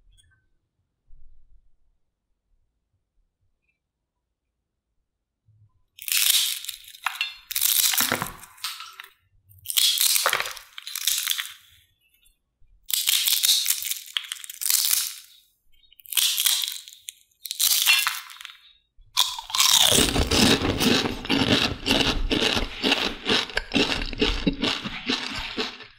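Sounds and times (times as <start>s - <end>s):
potato chips crackling and crunching: 6.0s - 11.8s, 12.9s - 15.4s, 16.0s - 25.9s.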